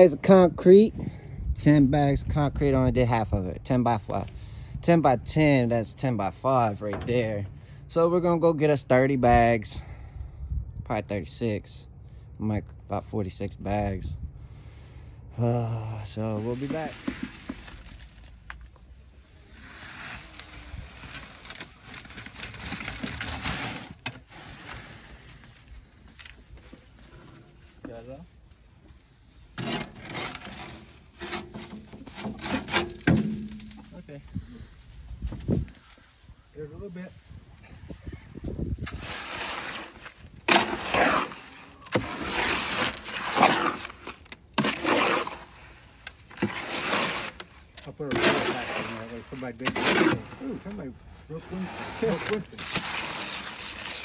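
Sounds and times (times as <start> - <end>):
wet concrete scraping from wheelbarrow: 16.1 - 18.3, 19.5 - 26.0, 29.6 - 34.0, 38.8 - 54.0.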